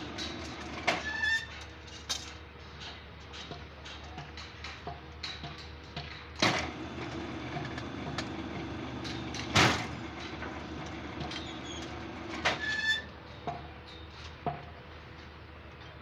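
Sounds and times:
machine motor humming: 0:00.0 - 0:01.0, 0:06.4 - 0:12.8
steel bars clanking: 0:06.6 - 0:13.1.

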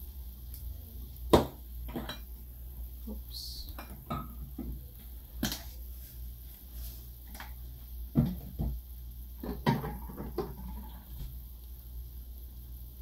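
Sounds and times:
steady low hum: 0:00.0 - 0:13.0
containers clunking on countertop: 0:09.4 - 0:10.9.

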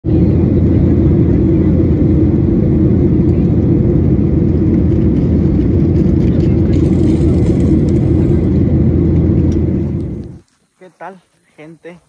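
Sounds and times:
jet cabin engine rumble: 0:00.0 - 0:10.4.

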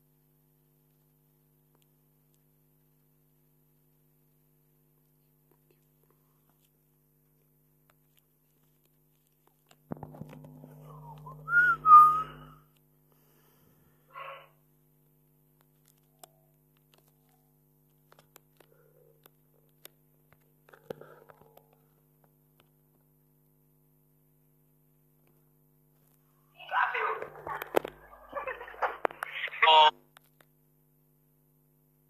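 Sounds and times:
steady low hum: 0:00.0 - 0:32.0
short whistled notes: 0:10.8 - 0:12.6.

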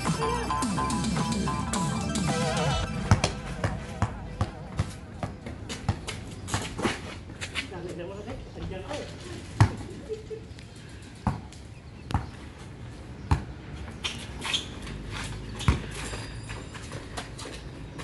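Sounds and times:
basketball bouncing on hard court: 0:03.0 - 0:06.8
light scuffs: 0:05.7 - 0:07.9.

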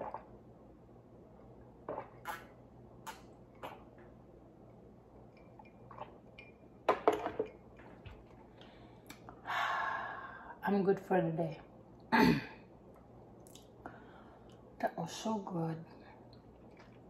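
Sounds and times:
mouth clicks: 0:01.9 - 0:03.9.

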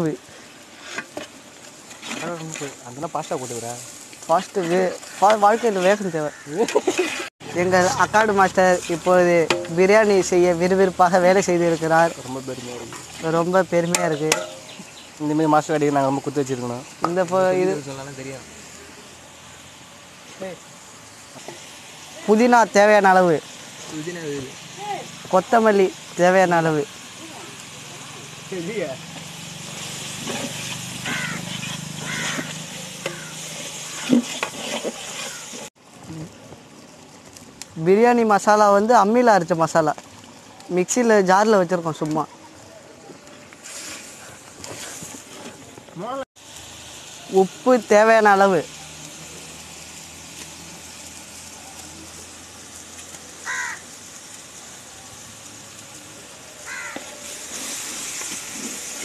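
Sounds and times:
crow cawing: 0:06.0 - 0:06.7, 0:31.0 - 0:34.2, 0:35.3 - 0:35.6, 0:53.4 - 0:53.9, 0:56.6 - 0:57.2
ladle clanking against pot: 0:14.3 - 0:14.7
metal ladle stirring in pot: 0:30.1 - 0:35.7.

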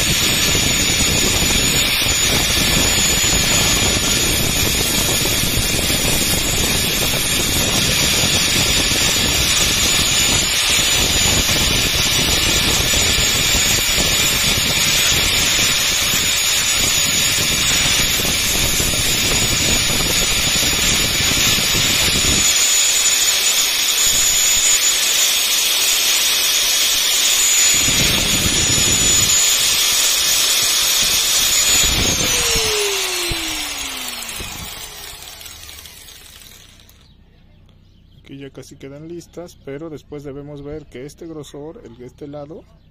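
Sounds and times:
bench grinder whine: 0:00.0 - 0:37.2
metal grinding against wheel: 0:00.0 - 0:37.2.

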